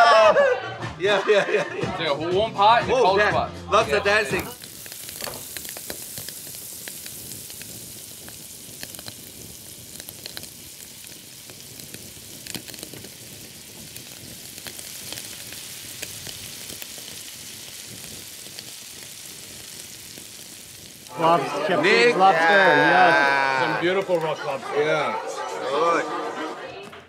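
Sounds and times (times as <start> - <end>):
food sizzling on a grill: 3.9 - 25.4.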